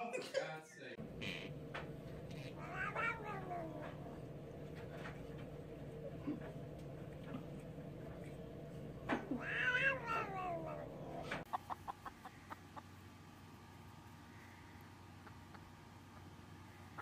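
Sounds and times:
cat meowing: 2.1 - 5.4, 9.1 - 11.4.

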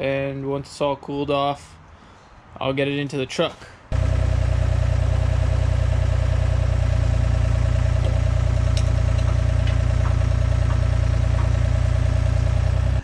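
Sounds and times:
loader engine running: 3.9 - 13.0.

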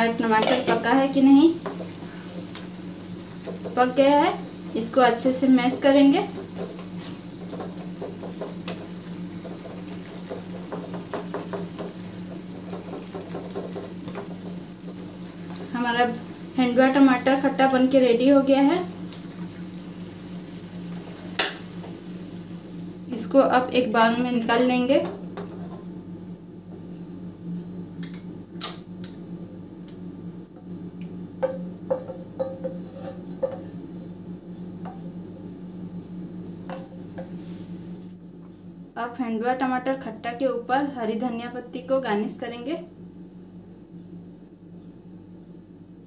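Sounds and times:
steady low hum: 0.0 - 46.0
spatula mashing tomatoes in pan: 1.6 - 5.0, 5.7 - 16.6, 31.9 - 35.6.

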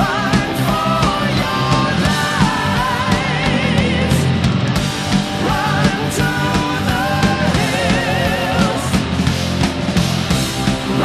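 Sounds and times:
heavy rock music: 0.0 - 11.0.

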